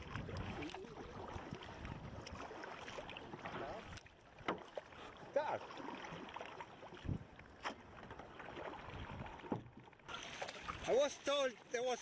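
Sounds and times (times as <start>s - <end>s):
paddle splashes and drips: 0.0s - 12.0s.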